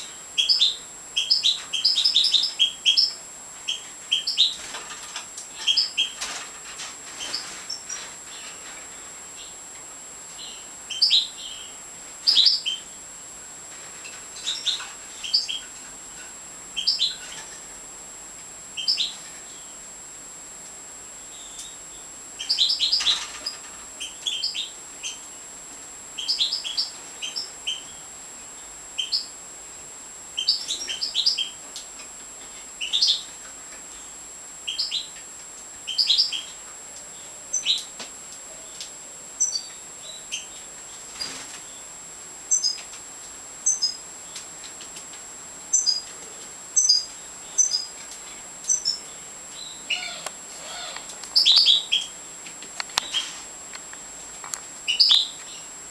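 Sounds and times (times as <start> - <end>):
finches twittering chirps: 0.4 - 6.4, 10.3 - 13.0, 14.1 - 15.8, 16.8 - 17.6, 18.8 - 19.8, 21.2 - 25.3, 26.2 - 28.1, 29.0 - 29.4, 30.4 - 31.6, 32.7 - 33.3, 33.9 - 35.2, 35.8 - 37.9, 39.4 - 42.8, 43.6 - 44.4, 45.7 - 46.1, 46.8 - 48.0, 48.6 - 52.2, 54.8 - 55.7.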